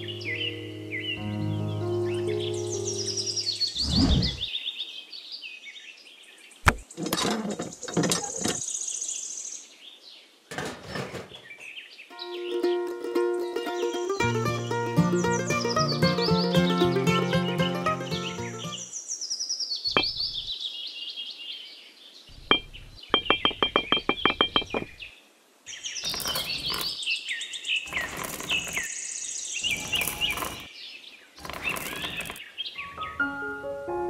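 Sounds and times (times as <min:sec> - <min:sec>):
birds chirping: 0:00.0 - 0:33.3
plucked-string tune: 0:12.1 - 0:18.8
pebbles rattling: 0:26.0 - 0:27.0, 0:27.9 - 0:28.9, 0:29.6 - 0:30.7, 0:31.4 - 0:32.4.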